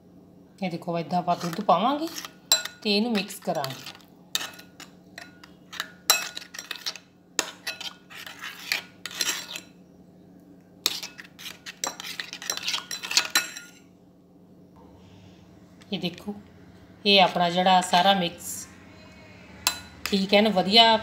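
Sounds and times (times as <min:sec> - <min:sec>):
metal spoon stirring in glass bowl: 0:01.3 - 0:09.8, 0:10.8 - 0:13.8, 0:19.6 - 0:20.3.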